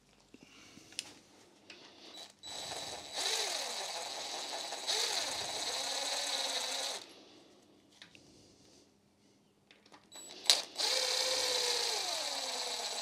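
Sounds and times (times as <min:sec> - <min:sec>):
impact wrench running: 0:02.2 - 0:07.0, 0:10.2 - 0:13.0.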